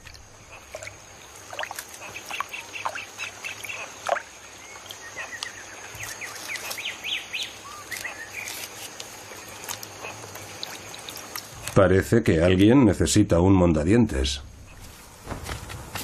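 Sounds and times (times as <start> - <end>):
animals chirping and squeaking: 1.6 - 11.8.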